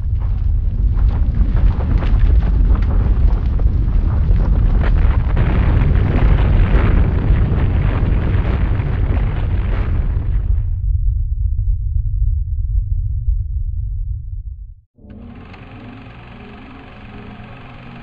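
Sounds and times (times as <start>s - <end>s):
deep rumble with crackling: 0.0s - 18.0s.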